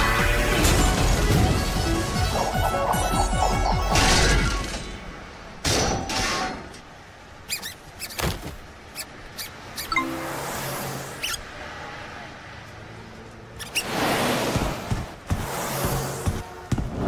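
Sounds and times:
short squeaky taps: 7.5s - 10.0s.

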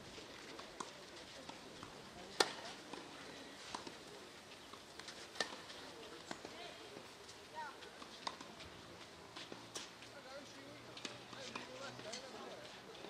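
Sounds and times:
tennis ball bounces: 0.5s - 4.0s, 4.9s - 6.6s, 8.0s - 8.6s.

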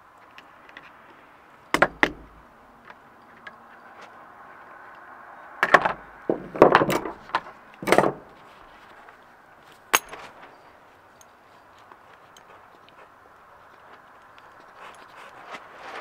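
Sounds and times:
hand tools knocking on metal: 5.6s - 8.3s
tools set down on wooden deck: 5.6s - 8.4s.

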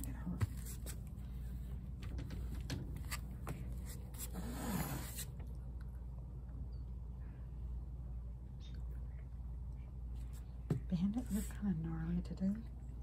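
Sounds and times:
cat hissing: 4.1s - 5.4s.

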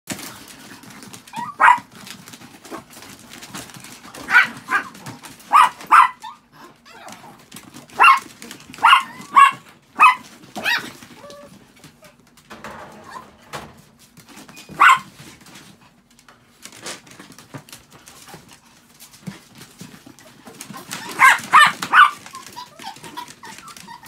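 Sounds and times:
small dogs yapping: 0.2s - 12.2s, 14.5s - 15.3s, 19.2s - 24.0s.

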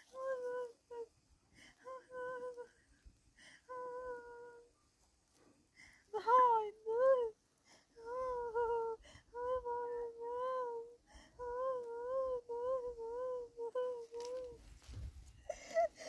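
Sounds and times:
high-pitched voice humming: 0.0s - 1.1s, 1.8s - 2.8s, 3.7s - 4.7s, 8.0s - 14.7s.

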